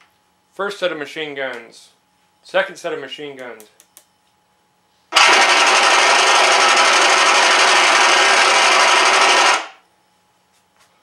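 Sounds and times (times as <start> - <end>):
machine gun rapid fire: 5.1 - 9.8.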